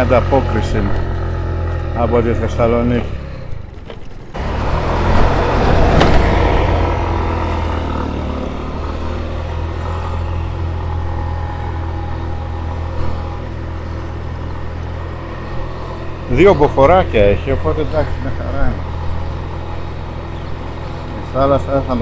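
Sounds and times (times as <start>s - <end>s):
motorcycle engine: 0.0s - 22.0s.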